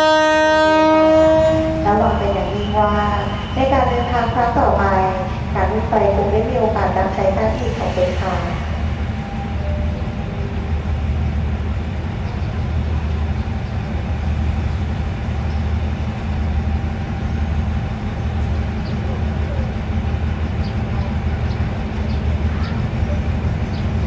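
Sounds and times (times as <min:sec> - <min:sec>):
locomotive engine drone: 0:00.0 - 0:24.0.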